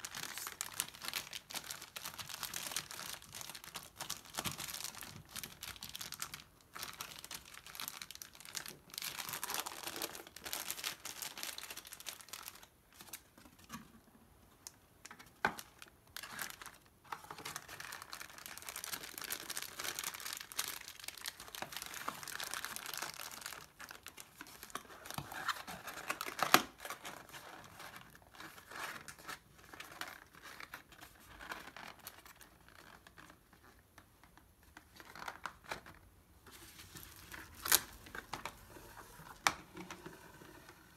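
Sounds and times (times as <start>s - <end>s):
foil and plastic bag crinkling: 0.0s - 13.3s, 15.4s - 33.4s.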